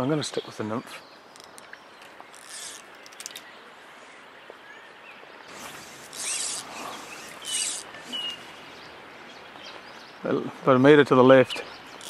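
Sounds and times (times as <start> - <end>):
fly reel ratchet buzzing: 2.3 - 3.4, 5.5 - 8.4.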